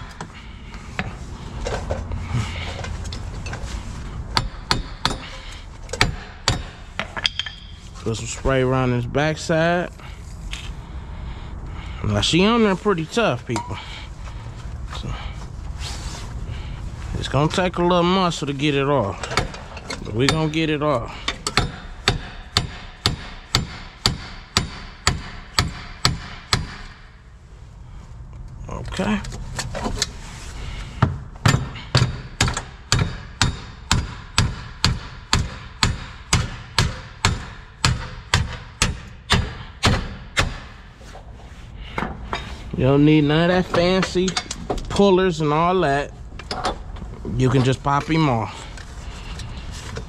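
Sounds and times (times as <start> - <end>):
hammer striking metal hub: 4.3 - 8.0, 19.2 - 27.0, 31.4 - 40.7.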